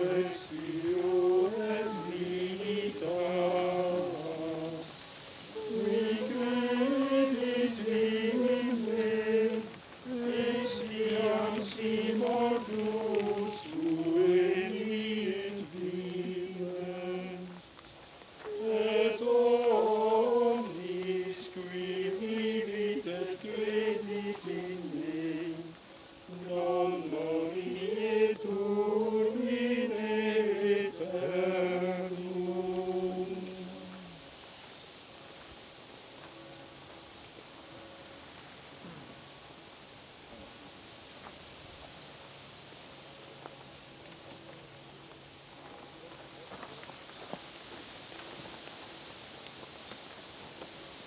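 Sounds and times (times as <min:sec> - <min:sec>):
men singing plainchant in unison: 0:00.0 - 0:17.6, 0:18.5 - 0:34.2.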